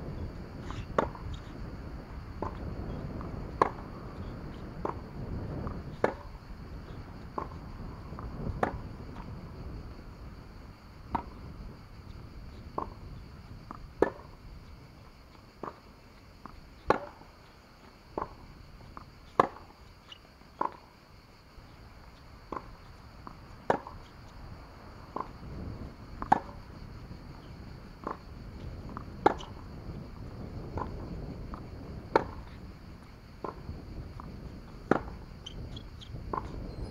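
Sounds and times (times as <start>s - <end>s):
tennis ball struck by rackets: 0.8s - 1.5s, 2.4s - 2.6s, 3.5s - 6.4s, 7.3s - 8.8s, 11.1s - 11.4s, 14.0s - 14.3s, 16.8s - 17.3s, 18.2s - 19.7s, 22.5s - 24.1s, 25.1s - 25.4s, 26.2s - 26.6s, 28.0s - 28.2s, 28.9s - 29.6s, 30.7s - 32.6s, 34.8s - 35.2s.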